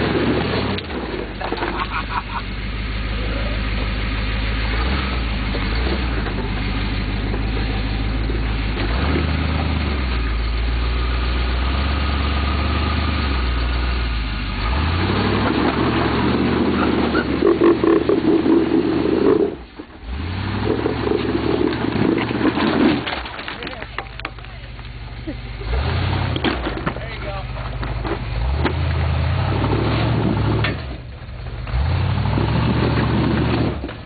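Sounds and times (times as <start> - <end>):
truck engine revving: 0.0 - 34.0.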